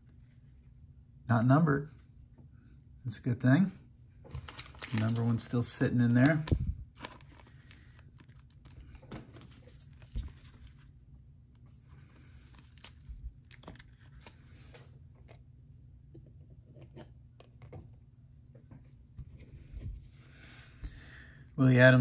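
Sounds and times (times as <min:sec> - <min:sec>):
steady low hum: 0:00.0 - 0:22.0
cards being handled: 0:04.3 - 0:11.0, 0:11.6 - 0:15.4
card pack wrapper tearing: 0:04.4 - 0:08.8, 0:12.4 - 0:14.4.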